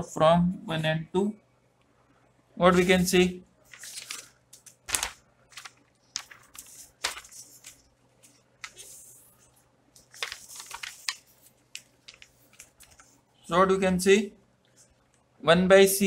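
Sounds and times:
paper rustling and crinkling: 2.7s - 13.3s.

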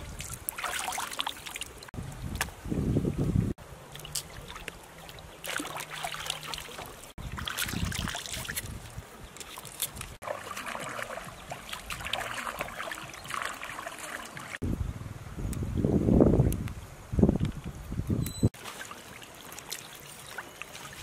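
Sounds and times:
hands splashing in water: 0.0s - 1.8s, 3.9s - 8.8s, 9.4s - 14.6s
river water running over stones: 3.8s - 14.6s, 18.6s - 21.0s.

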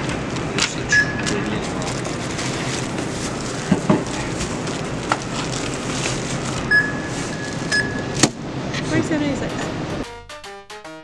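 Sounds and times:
store background hum: 0.0s - 10.1s
checkout scanner beeping: 0.9s - 1.9s, 6.6s - 10.0s.

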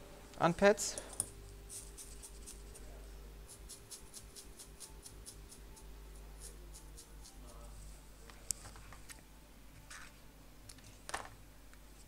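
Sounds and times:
low workshop hum: 0.0s - 12.0s
soldering tool scratchy ticking: 3.5s - 7.6s.

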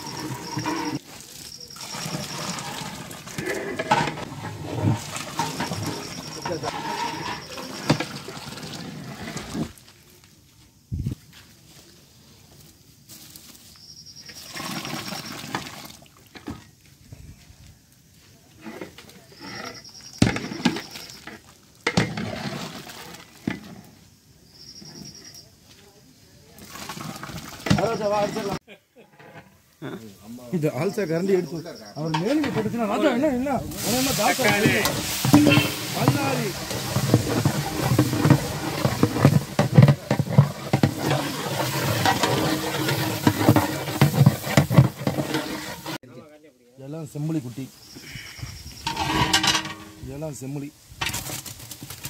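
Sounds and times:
metal ladle scraping a pot: 0.0s - 1.1s, 1.7s - 9.7s, 32.0s - 32.9s, 33.6s - 46.0s, 48.8s - 50.1s
boiling liquid churning: 0.0s - 9.8s, 14.4s - 16.2s, 21.1s - 23.5s, 26.6s - 28.4s, 33.6s - 46.0s
masala sizzling: 0.0s - 10.2s, 29.2s - 46.0s.

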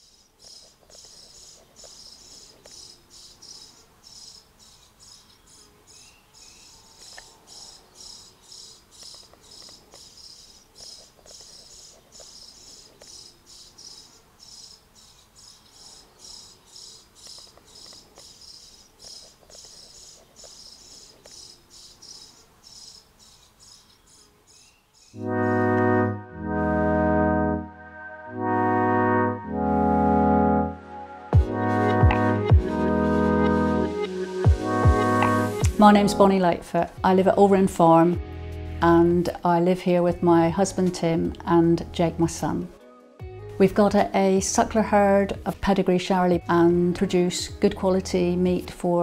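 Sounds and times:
insect chirping: 0.0s - 25.2s
loud brass music: 25.2s - 35.8s.

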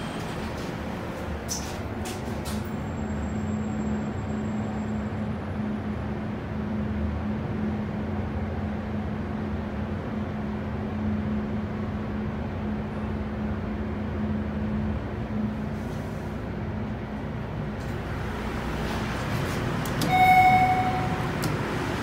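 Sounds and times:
elevator drive humming: 17.6s - 22.0s
elevator doors sliding open: 17.8s - 22.0s.

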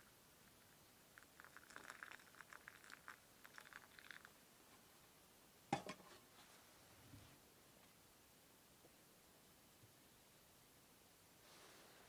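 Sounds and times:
tea leaves crackling: 0.0s - 4.4s.

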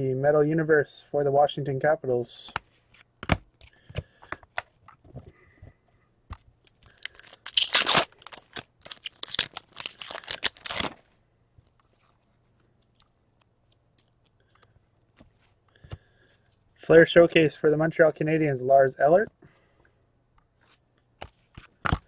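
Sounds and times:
wrapper tearing and crinkling: 6.8s - 11.1s.

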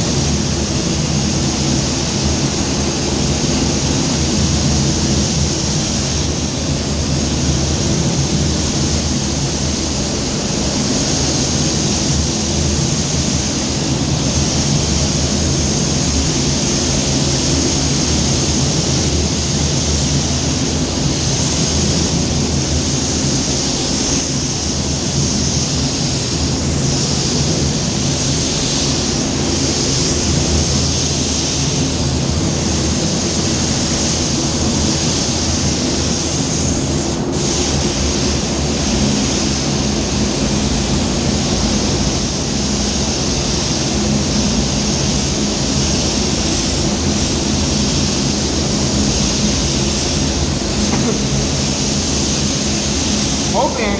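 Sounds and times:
paint spray gun hissing: 0.0s - 53.9s.

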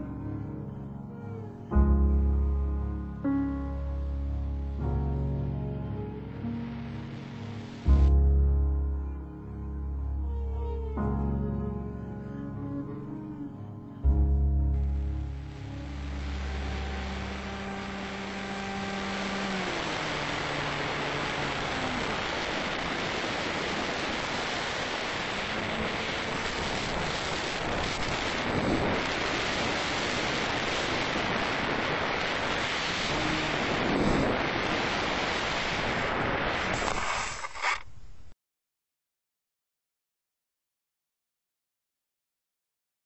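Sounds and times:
background music: 0.0s - 20.7s
short burst of noise: 36.4s - 38.2s.

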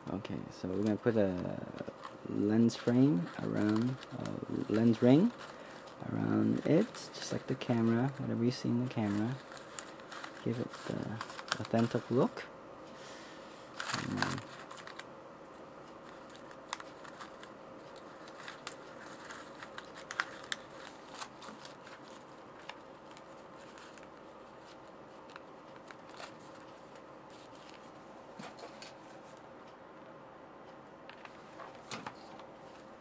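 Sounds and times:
faint steady hum: 0.0s - 33.0s
aluminum foil crinkling: 0.7s - 12.5s, 13.7s - 15.1s, 16.0s - 29.0s.

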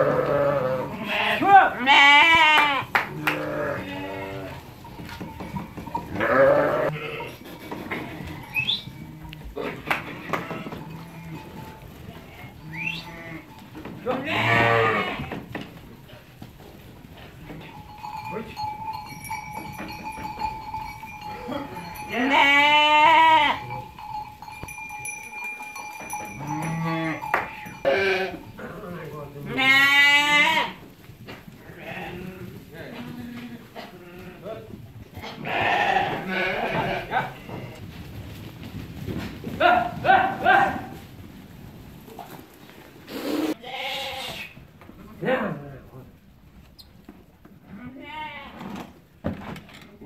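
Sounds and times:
sheep bleating: 0.0s - 4.7s, 5.9s - 15.4s, 21.3s - 23.8s, 26.3s - 28.8s, 29.4s - 30.9s, 31.6s - 34.6s, 35.2s - 37.8s, 43.1s - 44.6s, 47.7s - 48.6s
knocks and shuffling of flock: 0.0s - 50.0s.

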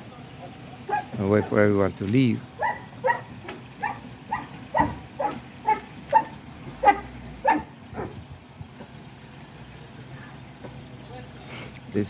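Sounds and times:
dog barking: 0.9s - 1.6s, 2.6s - 8.2s.

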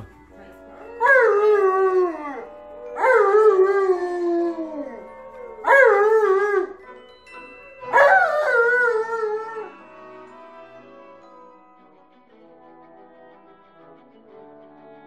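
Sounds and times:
dog howling: 1.0s - 6.8s, 7.9s - 9.8s.

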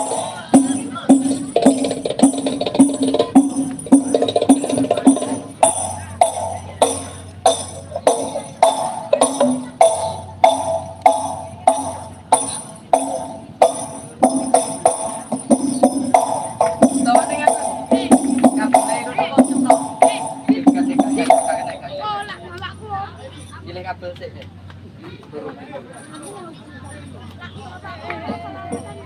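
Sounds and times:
frame drum strikes: 0.0s - 21.9s.

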